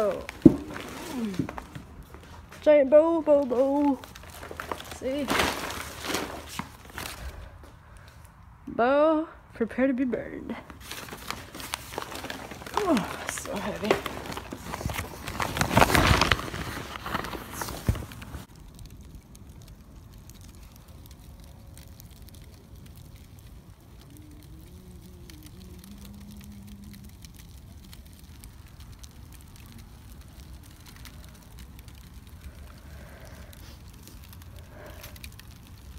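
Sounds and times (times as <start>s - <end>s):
campfire burning and crackling: 0.0s - 35.9s.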